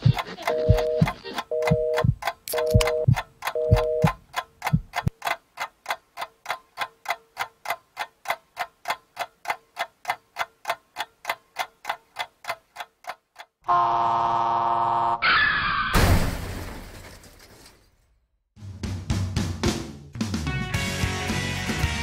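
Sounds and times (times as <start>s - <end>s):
clock-like ticking: 0.0s - 13.6s.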